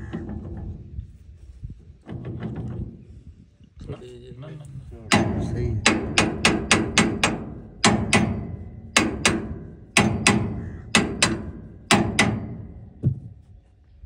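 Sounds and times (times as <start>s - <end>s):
hammer striking metal: 5.1s - 13.0s.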